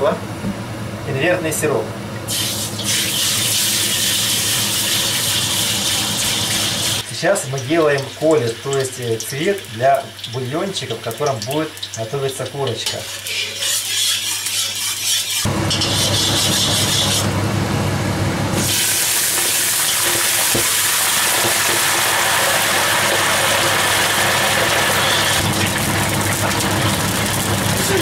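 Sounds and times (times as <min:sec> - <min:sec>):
loud hissing boil: 0:02.2 - 0:13.6, 0:18.5 - 0:28.0
syrup and oil sizzling in a wok: 0:02.2 - 0:17.3, 0:18.6 - 0:28.0
water pouring from a kettle: 0:18.6 - 0:28.0.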